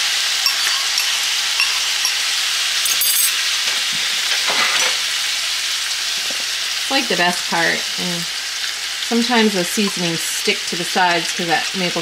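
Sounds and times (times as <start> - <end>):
sauce pouring: 0.0 - 3.6
vegetables sizzling in a skillet: 0.0 - 12.0.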